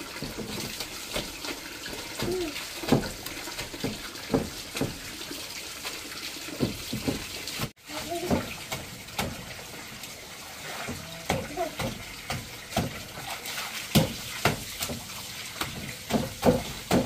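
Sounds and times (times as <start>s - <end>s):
water running and splashing: 0.0s - 17.0s.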